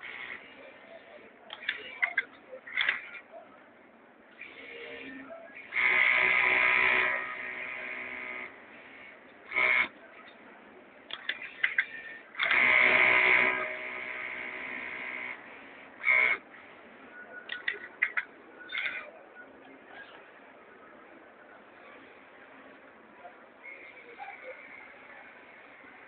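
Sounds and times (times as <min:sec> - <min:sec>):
sewing machine whining: 0:04.4 - 0:08.6, 0:09.5 - 0:09.9, 0:11.9 - 0:16.4.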